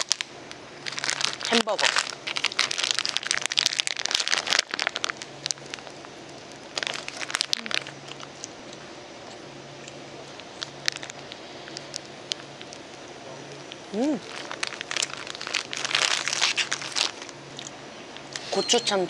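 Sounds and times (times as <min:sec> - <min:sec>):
plastic wrapper crinkling: 0:00.0 - 0:08.5, 0:10.3 - 0:12.9, 0:14.0 - 0:17.7.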